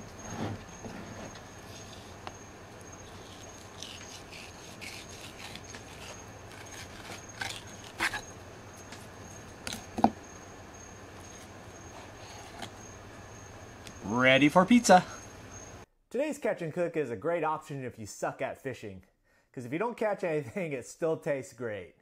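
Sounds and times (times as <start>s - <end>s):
rubbing scraping and clicking: 3.0s - 8.3s.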